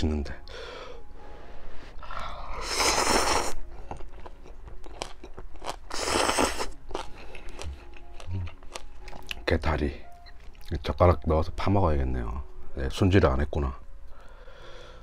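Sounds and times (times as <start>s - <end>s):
man slurping noodles: 2.5s - 3.6s, 5.9s - 6.7s
chewing: 3.7s - 9.4s.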